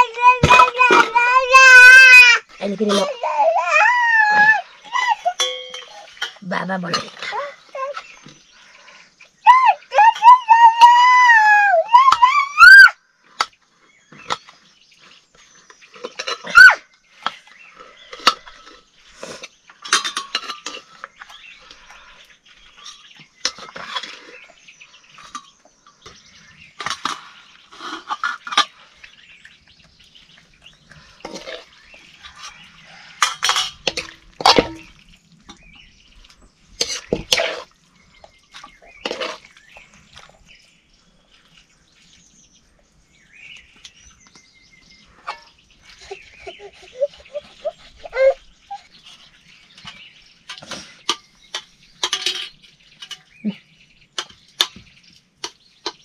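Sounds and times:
dishes and utensils clinking: 5.0 - 8.3, 15.9 - 21.9, 31.2 - 35.6, 49.8 - 53.4.

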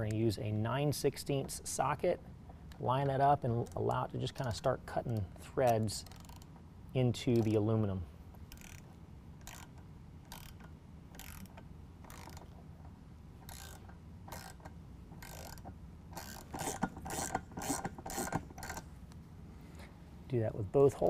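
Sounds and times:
hand ratchet clicking: 3.5 - 6.6, 7.3 - 7.6, 8.4 - 12.6, 13.4 - 18.9.

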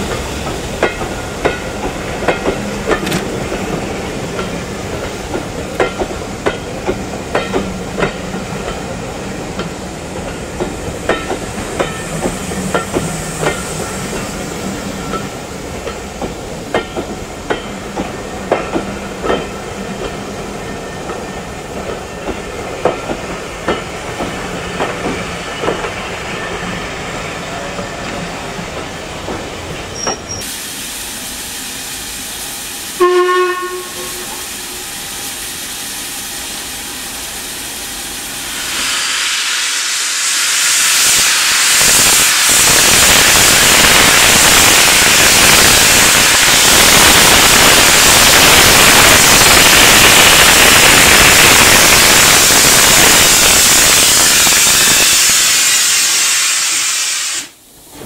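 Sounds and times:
steam hissing: 0.0 - 58.0
locomotive clanks and clicks: 0.1 - 8.9, 27.8 - 30.5
steam whistle blast: 32.9 - 34.9, 52.2 - 57.6.

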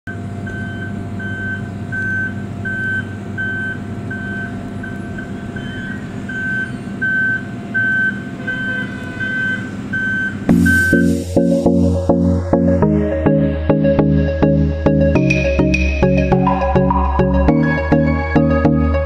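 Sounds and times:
diesel engine running: 0.1 - 19.0
warning beeper high tone: 4.2 - 19.0.

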